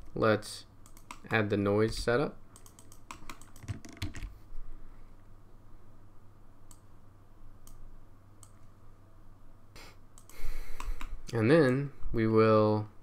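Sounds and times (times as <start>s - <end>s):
faint low hum: 0.0s - 13.0s
mouse and keyboard clicks: 0.8s - 1.3s, 2.6s - 4.3s.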